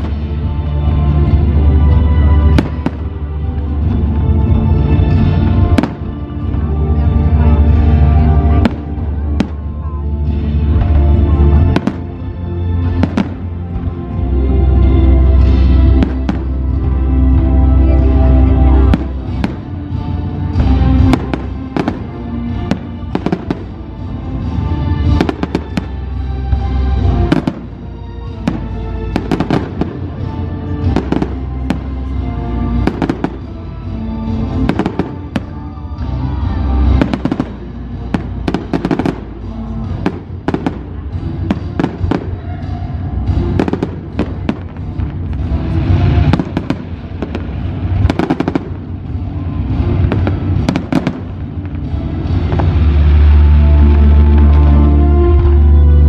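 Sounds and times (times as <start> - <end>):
loud music: 0.0 - 56.0
fireworks bursting: 1.3 - 4.2, 18.8 - 33.6, 34.2 - 55.5.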